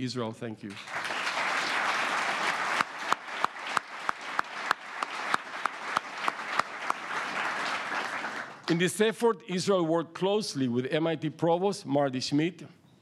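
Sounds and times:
audience applauding: 0.7s - 8.7s
sharp nearby claps: 0.7s - 8.7s.

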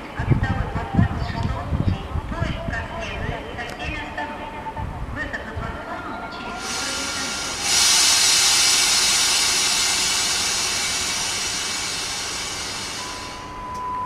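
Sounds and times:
compressed air hissing: 6.6s - 13.5s.

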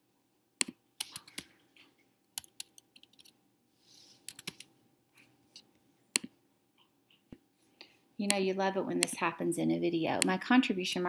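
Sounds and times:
typing on computer keyboard: 2.4s - 3.3s, 4.3s - 4.7s.

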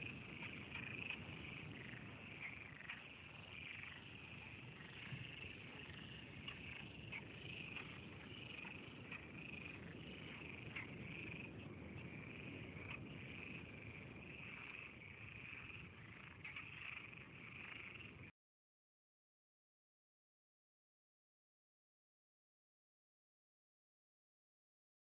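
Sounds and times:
frogs calling: 0.0s - 18.3s.

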